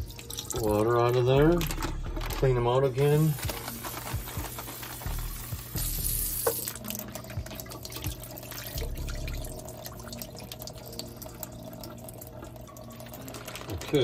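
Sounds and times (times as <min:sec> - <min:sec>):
water splashing and dripping: 0:00.0 - 0:01.2, 0:04.0 - 0:14.0.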